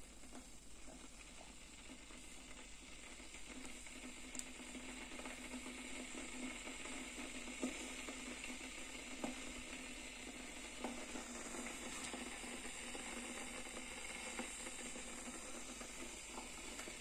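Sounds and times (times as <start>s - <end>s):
electric kettle hissing: 0.0s - 17.0s
light ticks: 4.3s - 4.5s.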